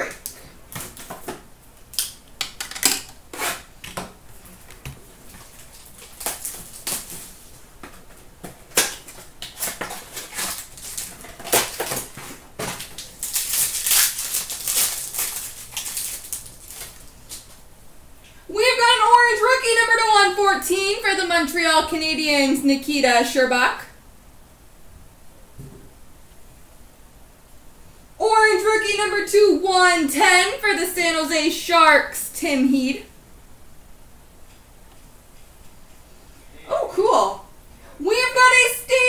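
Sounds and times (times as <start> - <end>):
packaging crackling and rustling: 4.5 - 17.6.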